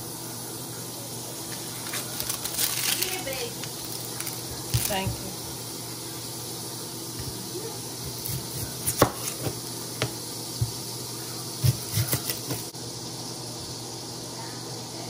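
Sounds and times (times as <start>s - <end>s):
knife cutting onion: 8.0s - 10.9s, 11.5s - 12.7s.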